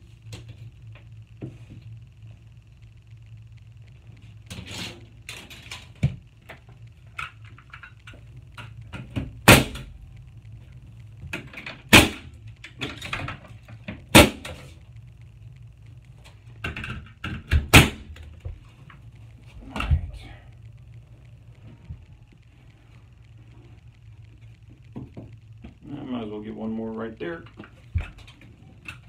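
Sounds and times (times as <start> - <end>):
nail gun firing: 17.7 - 18.0.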